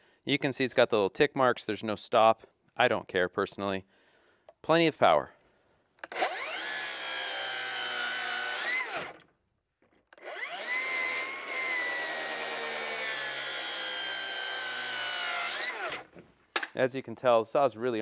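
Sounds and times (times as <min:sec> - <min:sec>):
circular saw cutting wood: 0:06.0 - 0:09.2, 0:10.2 - 0:16.1.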